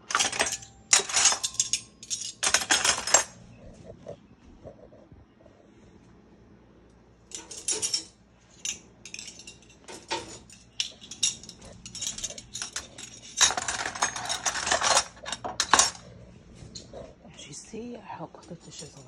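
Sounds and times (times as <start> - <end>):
cutlery clinking and clattering: 0.0 - 3.4, 7.3 - 16.1.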